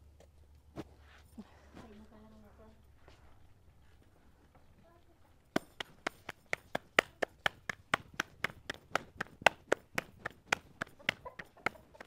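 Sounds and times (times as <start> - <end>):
dough slapped between palms: 5.5 - 12.0.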